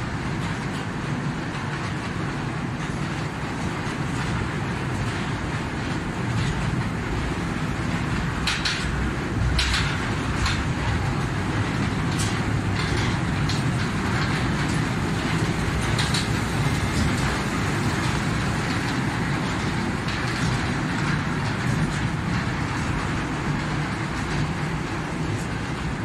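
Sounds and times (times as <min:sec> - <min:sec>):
toy train wheels rumbling on rail: 0:00.0 - 0:26.0.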